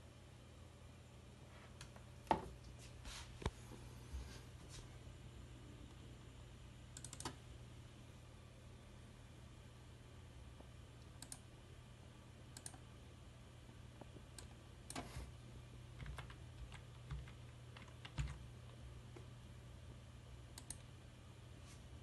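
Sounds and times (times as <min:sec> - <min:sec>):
computer keyboard keys tapping: 0:07.0 - 0:07.4, 0:11.2 - 0:11.4, 0:16.0 - 0:18.8, 0:20.6 - 0:20.9.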